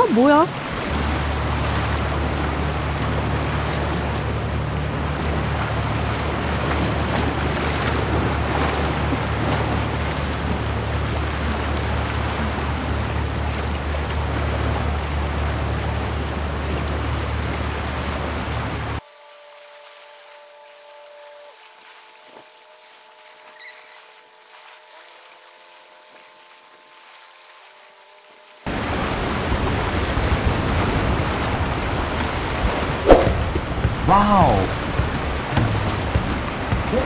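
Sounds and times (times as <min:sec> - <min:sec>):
wind buffeting microphone: 0:28.8 - 0:34.0.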